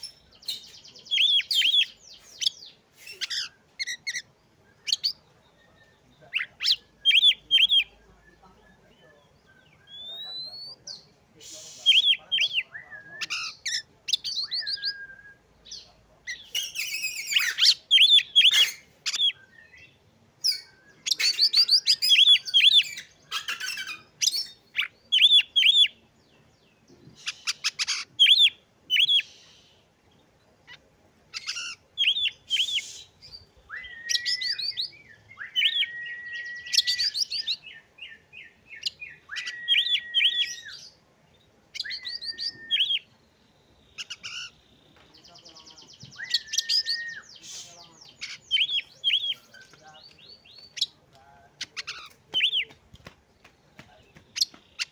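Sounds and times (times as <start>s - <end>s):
bird singing varied phrases: 0.0s - 54.9s
long level bird whistles: 14.2s - 15.5s, 32.0s - 37.8s, 38.8s - 41.0s, 41.8s - 43.1s, 46.1s - 47.8s.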